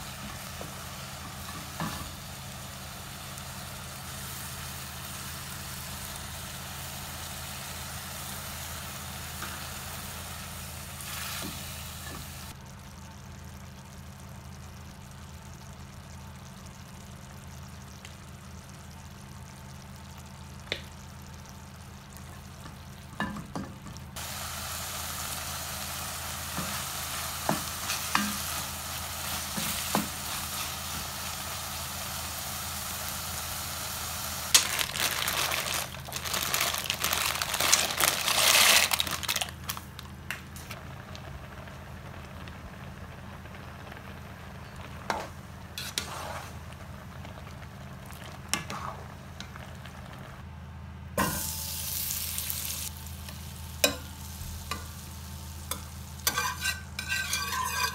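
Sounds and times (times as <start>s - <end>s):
meat and onions sizzling: 0.0s - 13.0s, 24.1s - 39.9s, 51.2s - 57.9s
spatula scraping and tapping pot: 55.7s - 57.9s.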